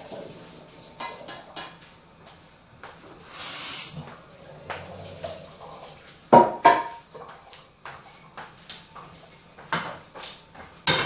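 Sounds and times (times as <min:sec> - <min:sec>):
brief hiss: 0:03.2 - 0:04.0.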